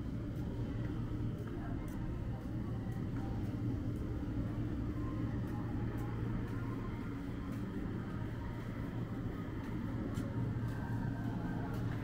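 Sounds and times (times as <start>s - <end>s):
steady low hum: 0.0s - 12.0s
faint footsteps: 5.4s - 12.0s.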